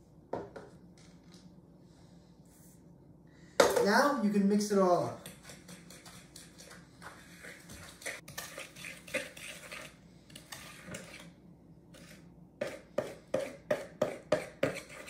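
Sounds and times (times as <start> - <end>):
fork beating in plastic bowl: 12.0 - 15.0.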